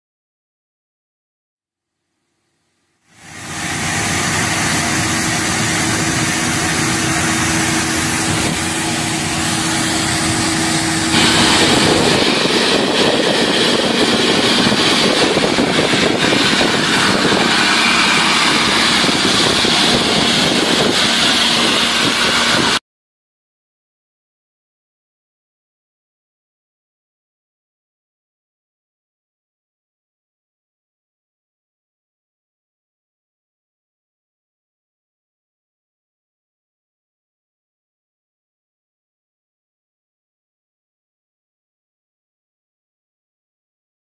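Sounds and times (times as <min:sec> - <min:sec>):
truck engine hum: 0:03.2 - 0:22.8
water jets hissing: 0:03.2 - 0:22.8.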